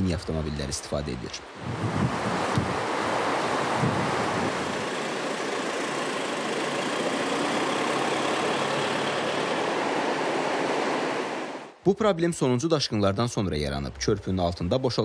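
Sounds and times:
river rushing: 0.0s - 11.8s.

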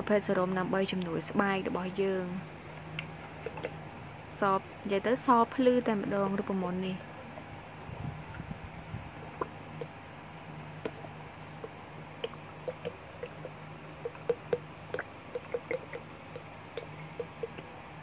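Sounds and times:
gel squelching from plastic bottle: 2.9s - 3.8s, 10.8s - 17.8s.

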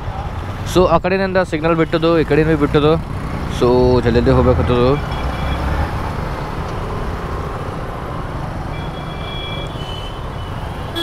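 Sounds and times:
motorcycle engine and road rumble: 0.0s - 11.0s
faint high-pitched traffic tones: 8.7s - 11.0s.

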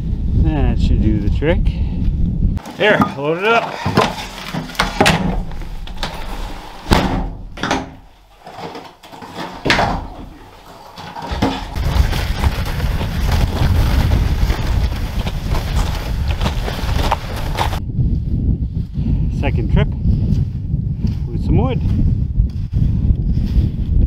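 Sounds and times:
loud knocks: 3.8s - 8.1s
steady low rumble: 4.7s - 8.3s
tailgate slamming shut: 4.8s - 8.0s.

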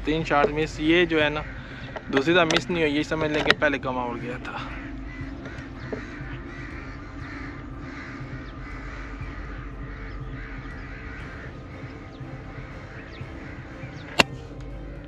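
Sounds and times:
crows cawing: 0.0s - 15.0s.

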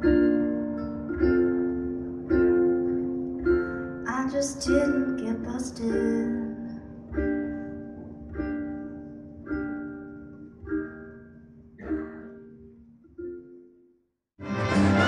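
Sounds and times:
ukulele strummed chords: 0.0s - 13.8s, 14.4s - 15.0s
woman singing: 4.0s - 6.8s.

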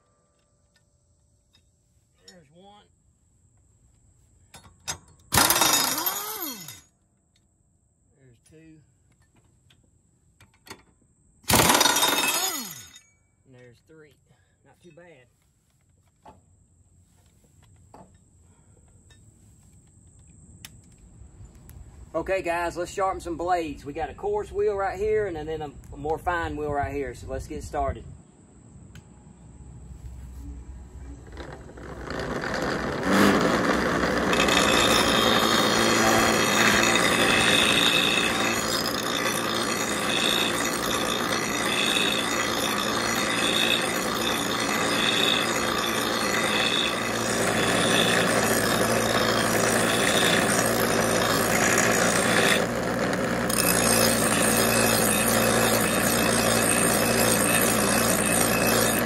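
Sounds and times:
blade grinding on wheel: 5.3s - 6.8s, 11.5s - 13.0s, 31.2s - 59.0s
bench grinder motor hum: 5.4s - 6.8s, 11.5s - 12.9s, 31.2s - 59.0s.

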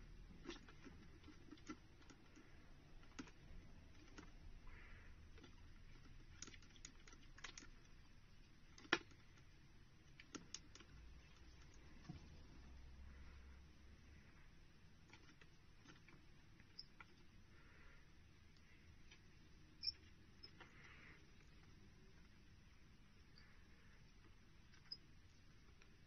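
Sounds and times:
faint small clicks and taps: 0.3s - 12.6s.

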